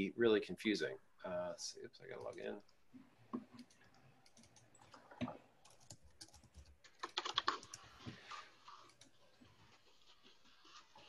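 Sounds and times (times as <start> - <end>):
typing on computer keyboard: 3.4 - 8.2.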